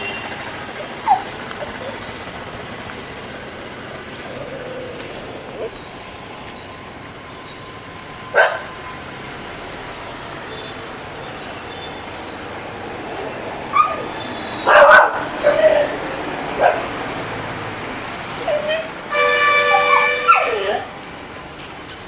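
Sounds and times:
dogs barking and yelping: 0:00.7 - 0:07.0, 0:07.9 - 0:09.2, 0:13.1 - 0:20.9.

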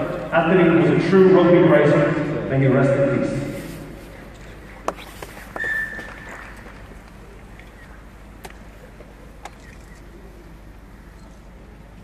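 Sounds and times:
low crowd hush: 0:03.4 - 0:12.0.

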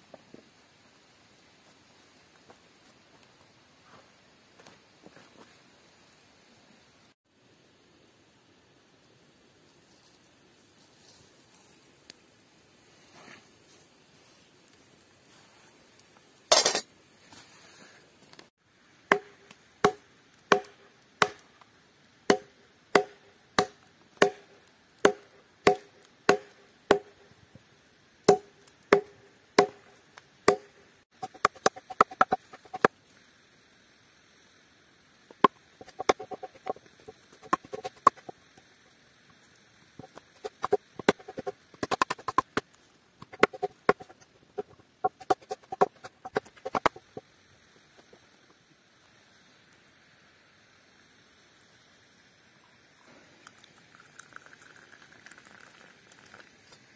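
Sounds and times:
hatchet chopping wood: 0:19.1 - 0:21.4, 0:22.3 - 0:27.2, 0:28.3 - 0:29.8, 0:30.5 - 0:32.9, 0:35.8 - 0:38.3, 0:40.0 - 0:42.6, 0:43.2 - 0:44.2, 0:45.0 - 0:47.0.

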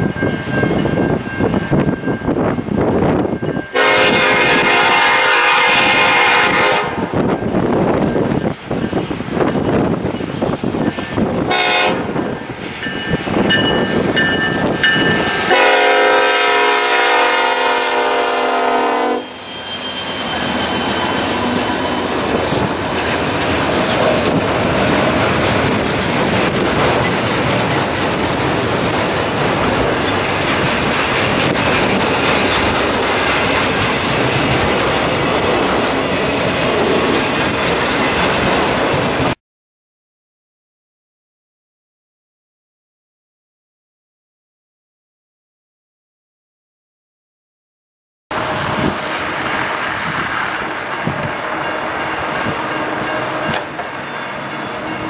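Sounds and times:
freight train rumbling past: 0:00.0 - 0:39.4, 0:48.3 - 0:55.0
diesel locomotive horn: 0:03.7 - 0:07.2, 0:11.5 - 0:12.2, 0:15.4 - 0:22.2.

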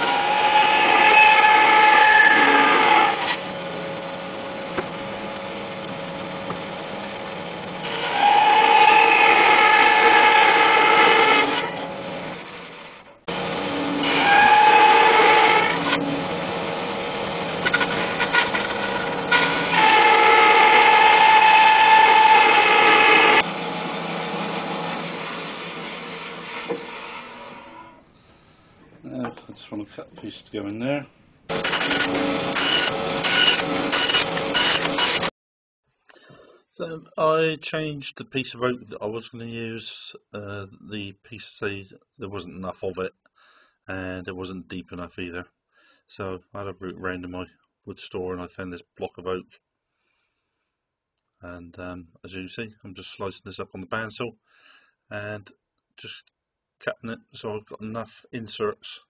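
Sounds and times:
bandsaw cutting wood: 0:00.0 - 0:28.0, 0:31.5 - 0:35.3.

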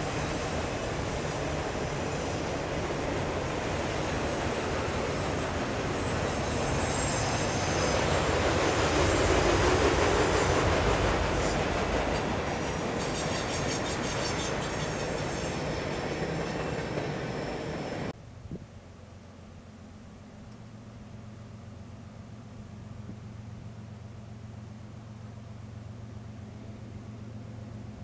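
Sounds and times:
freight train wheels rumbling: 0:00.0 - 0:18.2
high-pitched wheel squeal: 0:12.7 - 0:18.1.

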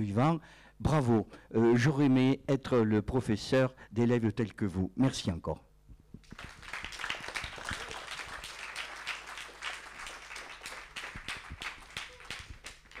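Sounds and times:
audience applauding: 0:06.2 - 0:13.0.

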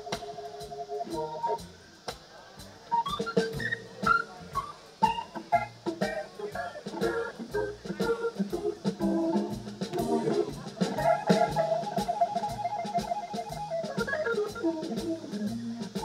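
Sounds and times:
blues band playing: 0:00.0 - 0:16.0
electric guitar melody: 0:09.0 - 0:16.0.

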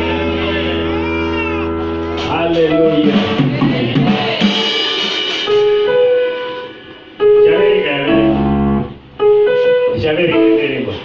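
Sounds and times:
electronic keyboard sustained notes: 0:00.0 - 0:03.9, 0:05.5 - 0:11.0
drum kit: 0:01.7 - 0:06.9.

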